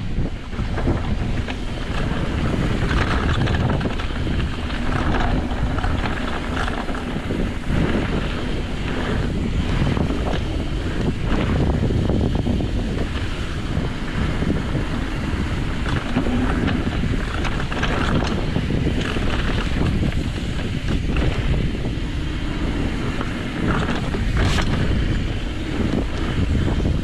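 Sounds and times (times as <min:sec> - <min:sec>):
bike tyres rumbling on dirt trail: 0:00.0 - 0:27.0
wind buffeting microphone: 0:00.0 - 0:27.0
clacks and rattles from bumps: 0:00.4 - 0:11.8, 0:15.7 - 0:21.5, 0:23.1 - 0:25.2.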